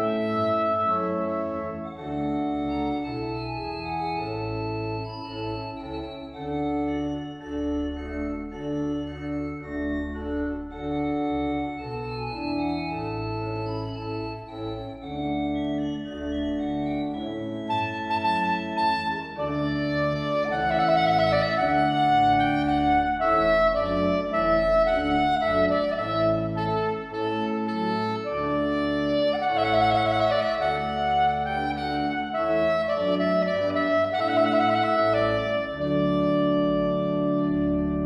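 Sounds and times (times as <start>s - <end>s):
soprano saxophone: 0.0s - 5.4s, 17.7s - 38.0s
organ chords: 0.0s - 38.0s.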